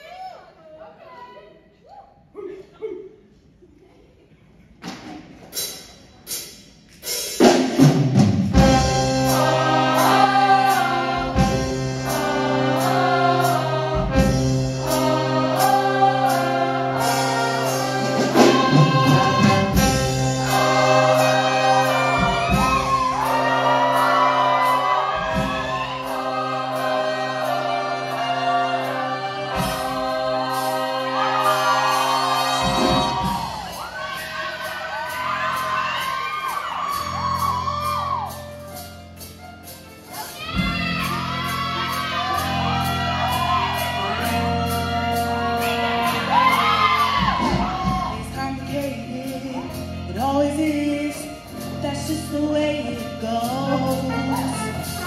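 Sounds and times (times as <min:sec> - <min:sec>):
instrumental accompaniment: 0:05.5 - 0:55.0
choir singing: 0:08.6 - 0:36.4, 0:40.4 - 0:48.2.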